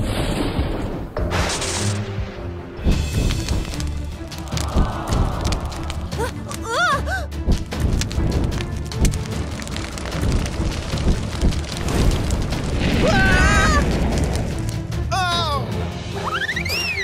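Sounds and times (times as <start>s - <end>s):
background music: 0.6s - 17.0s
fire crackling: 2.8s - 15.2s.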